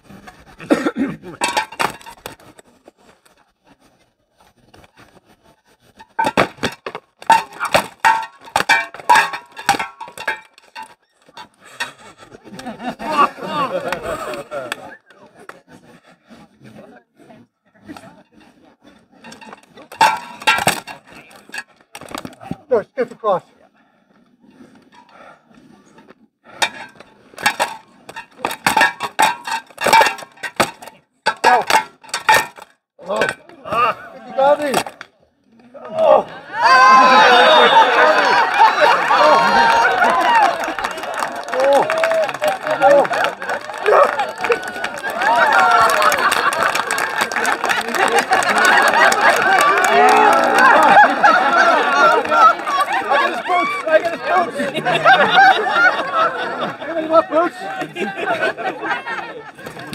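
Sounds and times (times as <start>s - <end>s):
weapons striking shields and armour: 6.1s - 12.0s, 19.3s - 22.3s, 26.6s - 33.4s.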